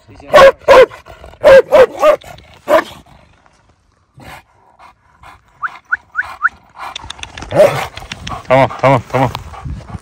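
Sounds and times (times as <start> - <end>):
large dog barking: 0.2 - 3.0, 7.5 - 8.0.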